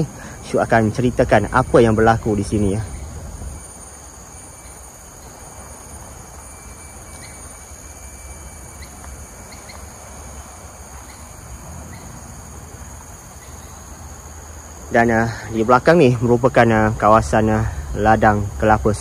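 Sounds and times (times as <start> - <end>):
bird chirps: 0.0 - 12.3
insects droning: 0.0 - 19.0.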